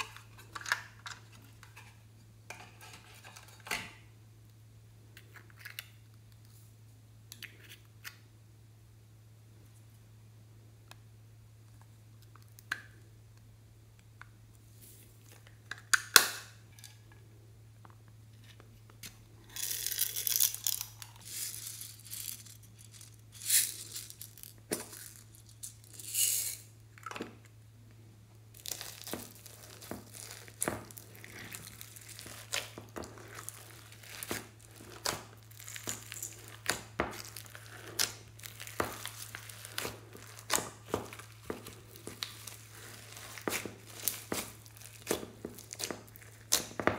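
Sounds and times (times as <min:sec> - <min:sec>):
low steady hum: 0:00.0 - 0:46.9
loose bits rattling and pouring: 0:19.5 - 0:26.7
slime crackling and popping: 0:28.5 - 0:46.9.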